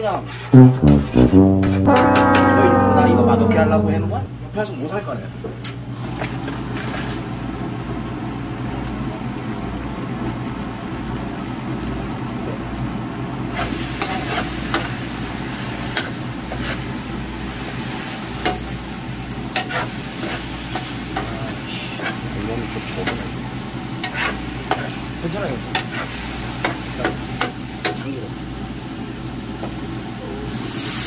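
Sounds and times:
steady low hum: 0.6s - 4.7s
sauce sizzling in a frying pan: 7.3s - 31.0s.

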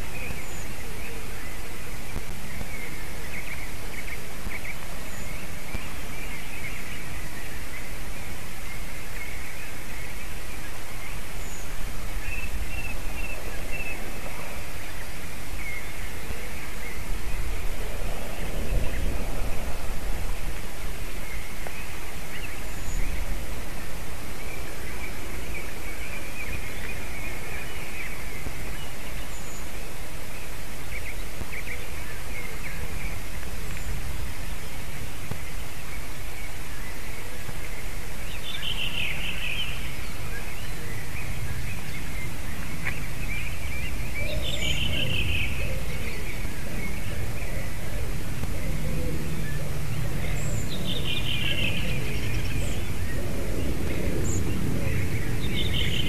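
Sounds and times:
faint bird calls: 0.0s - 56.0s
microphone hiss: 0.0s - 56.0s
wind: 0.0s - 56.0s
low rumble: 11.8s - 23.9s.

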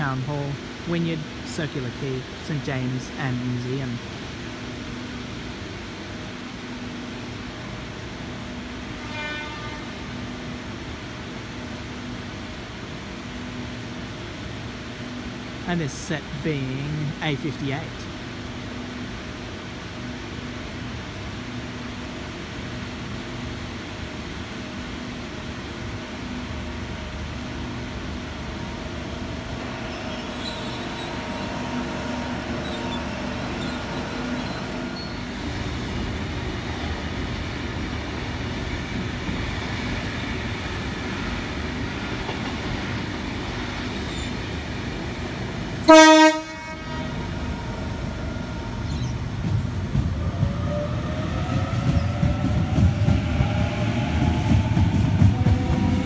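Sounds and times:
electric train hum: 0.0s - 56.0s
train horn blast: 8.9s - 10.2s, 45.8s - 47.5s
train motor whine: 26.2s - 56.0s.

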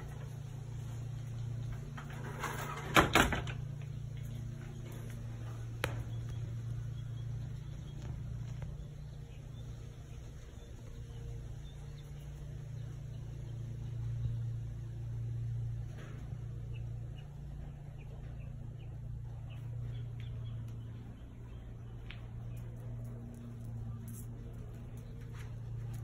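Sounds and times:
screen door clattering: 0.0s - 6.7s
steady low hum: 0.0s - 26.0s.

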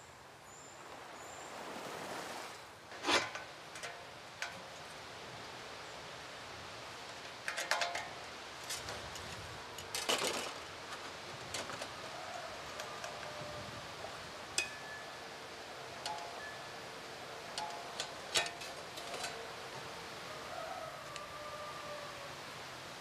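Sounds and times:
steady background hiss: 0.0s - 23.0s
light metallic clinks: 14.6s - 15.2s, 16.0s - 16.7s, 17.5s - 19.5s.

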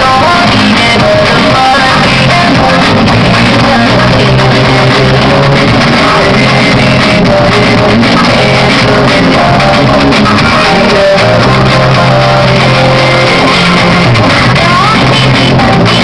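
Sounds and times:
dance song with guitar: 0.0s - 16.0s.

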